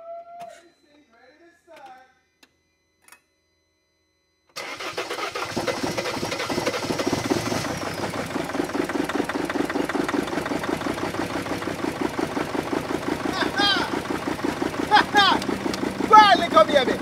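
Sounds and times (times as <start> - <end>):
starter motor whine: 4.5 - 17.0
diesel engine running: 4.6 - 17.0.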